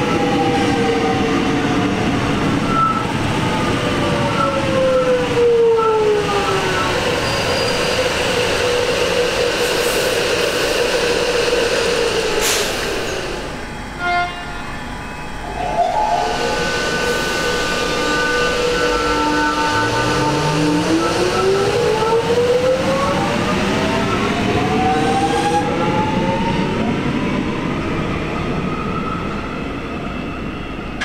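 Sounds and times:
electric train motors whining: 0:11.0 - 0:26.5.

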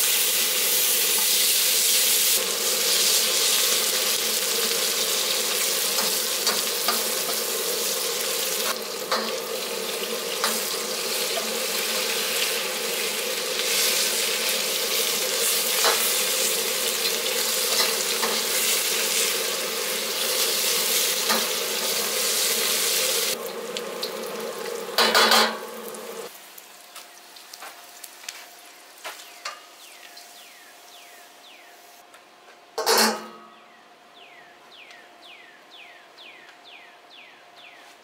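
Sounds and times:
gas burner running: 0:00.0 - 0:26.3
onions sizzling in wok: 0:00.0 - 0:32.0.

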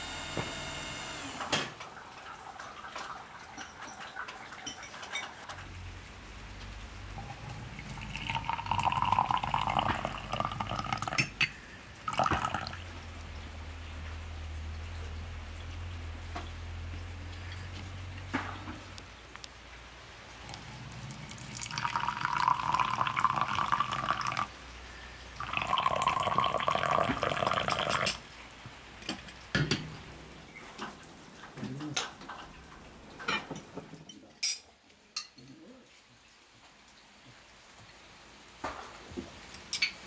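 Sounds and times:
tea pouring into a glass: 0:07.2 - 0:12.8, 0:20.4 - 0:24.5, 0:25.4 - 0:28.2.

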